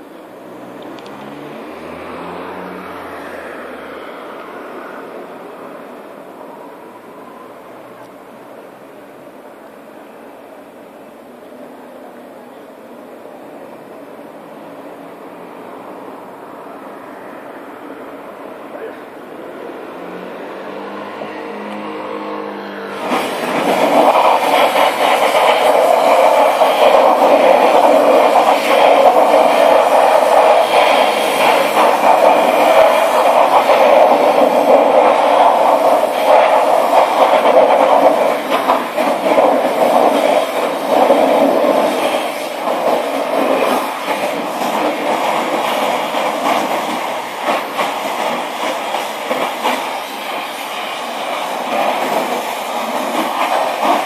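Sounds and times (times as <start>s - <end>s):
pressure washer jet hissing: 19.3s - 54.0s.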